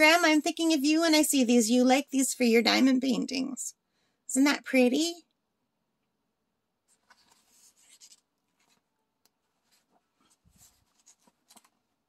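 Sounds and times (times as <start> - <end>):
paper pages rustling and turning: 6.8 - 12.0.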